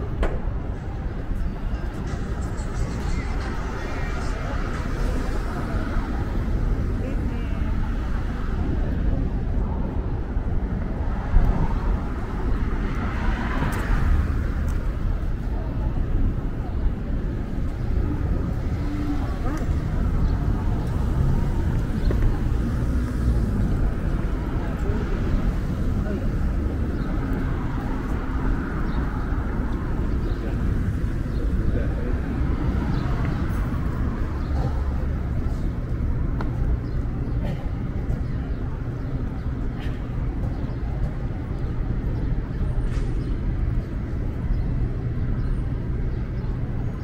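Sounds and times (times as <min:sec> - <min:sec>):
metro train rumbling: 0:00.0 - 0:46.7.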